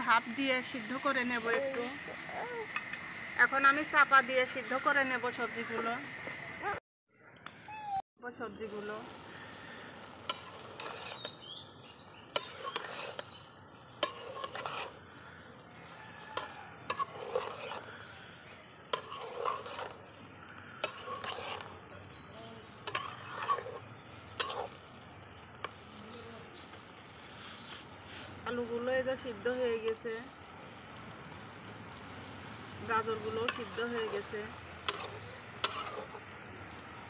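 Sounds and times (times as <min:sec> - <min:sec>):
metal spatula scraping a pot: 0:00.6 - 0:05.4, 0:10.2 - 0:11.5, 0:12.3 - 0:15.4, 0:16.2 - 0:22.2, 0:22.8 - 0:24.9, 0:29.2 - 0:30.2, 0:32.8 - 0:36.4.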